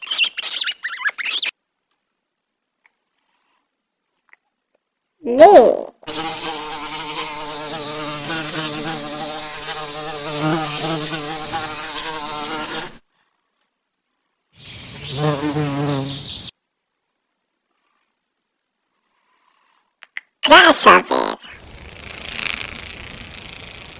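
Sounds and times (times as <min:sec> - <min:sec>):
bee buzzing: 0:06.1 - 0:13.0, 0:15.0 - 0:16.4, 0:21.6 - 0:23.9.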